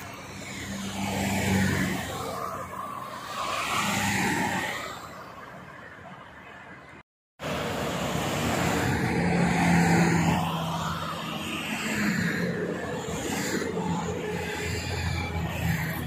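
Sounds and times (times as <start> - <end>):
motorway traffic passing: 0.0 - 16.0
truck passing: 7.4 - 16.0.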